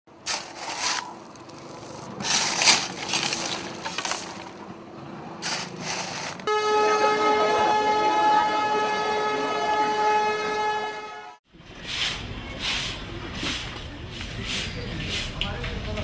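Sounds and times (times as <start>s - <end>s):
noisy clatter: 0.3s - 6.5s
train horn: 6.4s - 11.4s.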